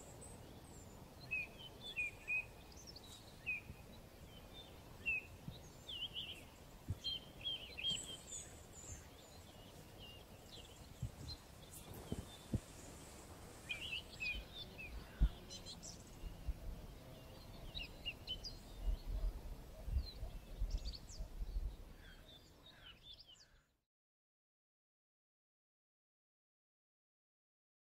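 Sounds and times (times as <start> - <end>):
birds chirping and singing: 0.1 - 23.6.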